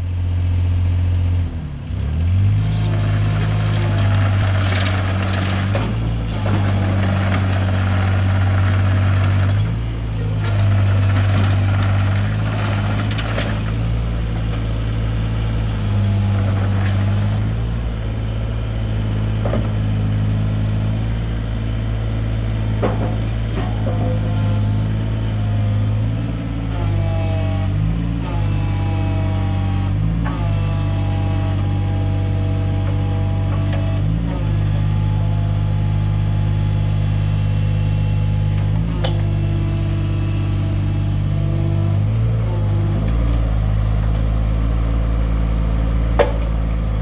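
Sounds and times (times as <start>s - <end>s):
diesel engine running: 0.0s - 47.0s
hydraulics under load: 2.6s - 14.8s, 22.6s - 25.8s.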